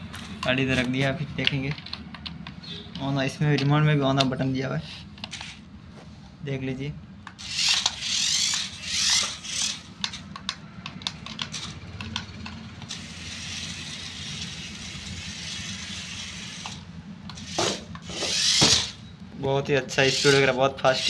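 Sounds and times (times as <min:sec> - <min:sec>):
electric motor and gears whirring: 0:05.1 - 0:05.7, 0:07.3 - 0:21.0
clicks: 0:10.0 - 0:12.9.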